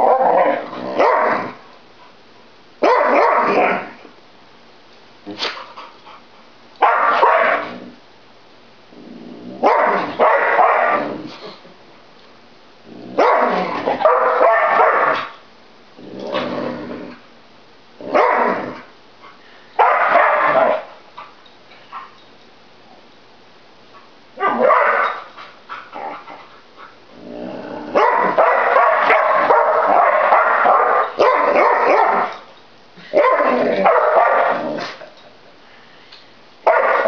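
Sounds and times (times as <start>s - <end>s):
dogs barking: 0.0s - 1.6s, 2.8s - 3.9s, 6.8s - 7.7s, 9.6s - 11.0s, 13.2s - 15.4s, 18.1s - 18.7s, 19.8s - 20.9s, 24.4s - 25.3s, 27.9s - 32.4s, 33.1s - 34.7s, 36.6s - 37.0s.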